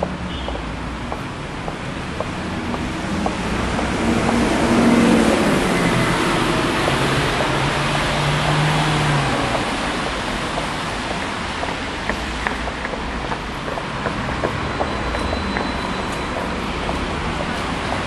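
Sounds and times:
tyres hissing on wet road: 2.3s - 14.0s.

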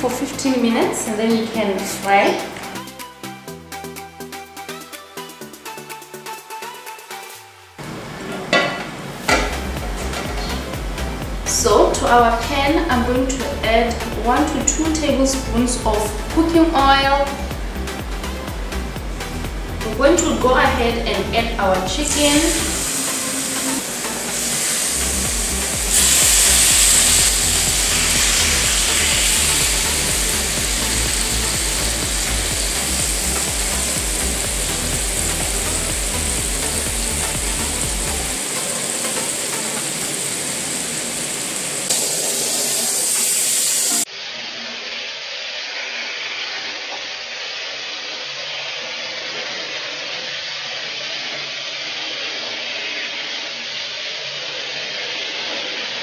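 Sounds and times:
chicken sizzling in a frying pan: 21.9s - 56.0s.

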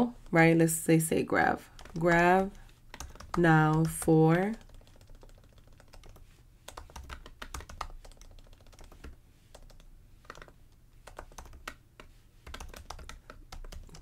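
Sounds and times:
keyboard typing clicks: 1.8s - 11.8s.

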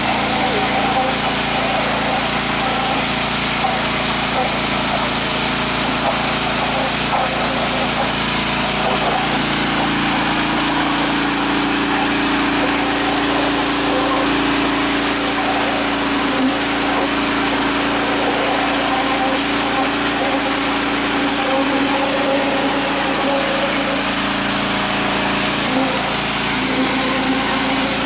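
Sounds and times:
pressure washer engine droning: 0.0s - 28.0s
water jet hissing into soil: 8.6s - 28.0s.

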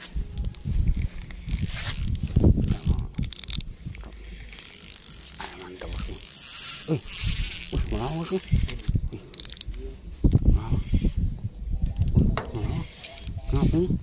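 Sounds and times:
wind buffeting microphone: 0.0s - 6.3s, 7.0s - 14.0s
fishing reel gears whining: 0.2s - 10.0s, 11.8s - 13.9s.

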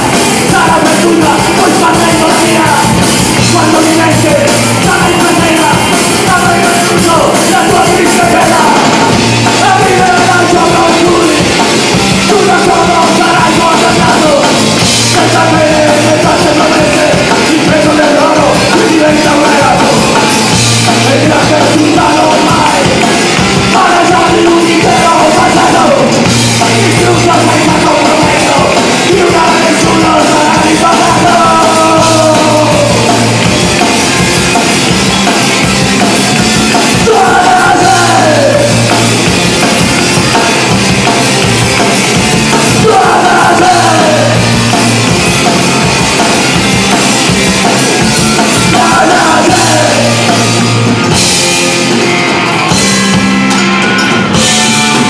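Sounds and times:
person singing: 0.0s - 33.9s, 36.6s - 39.3s, 42.2s - 46.6s, 48.3s - 50.7s
bass guitar: 0.0s - 55.0s
drum kit: 0.0s - 55.0s
electric guitar: 0.0s - 55.0s.

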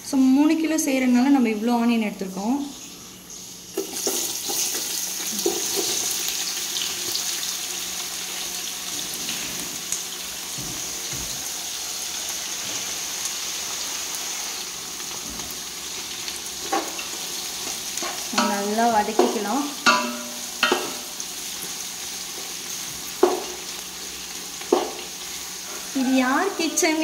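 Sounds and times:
onions sizzling in hot oil: 2.6s - 27.0s.

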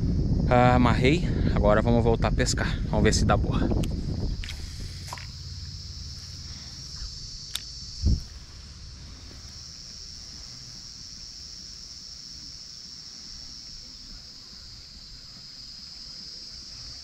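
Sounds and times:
insects trilling: 0.0s - 17.0s
sharp click: 7.4s - 8.2s.

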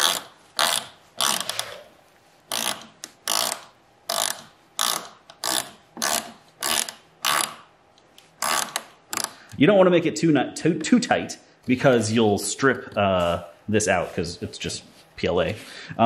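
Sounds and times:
ratcheting wrench clicking: 0.0s - 1.7s, 2.5s - 7.6s, 8.4s - 9.6s.

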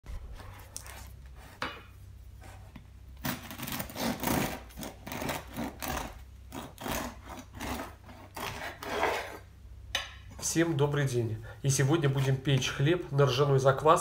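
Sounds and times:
bread knife sawing crust: 3.2s - 9.4s.

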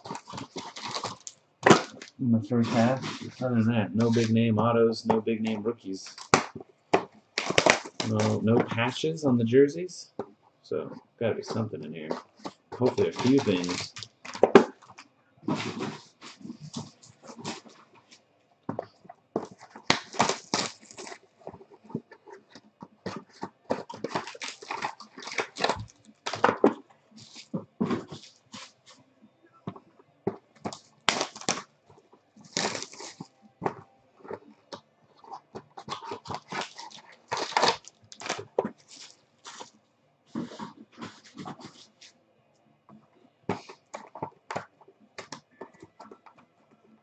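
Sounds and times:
cardboard boxes being opened: 0.0s - 3.4s, 12.2s - 14.9s, 19.4s - 22.1s, 23.1s - 28.7s, 32.5s - 34.4s, 35.3s - 39.7s
foil card packs crinkling: 0.0s - 4.4s, 5.4s - 6.6s, 7.3s - 9.0s, 11.4s - 17.9s, 19.4s - 28.9s, 30.6s - 31.7s, 32.4s - 34.5s, 35.2s - 39.7s.

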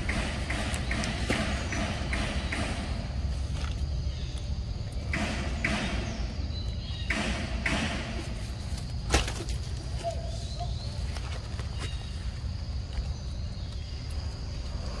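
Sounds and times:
rustling in undergrowth: 3.2s - 4.6s, 8.2s - 15.0s.

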